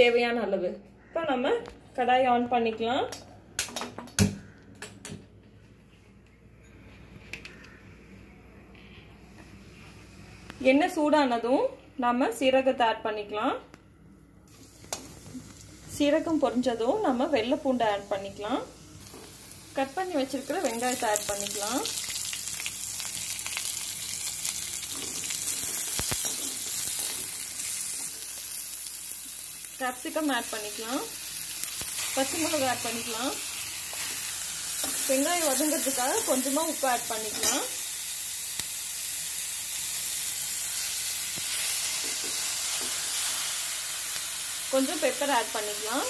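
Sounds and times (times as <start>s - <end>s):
onions sizzling in hot oil: 14.5s - 46.0s.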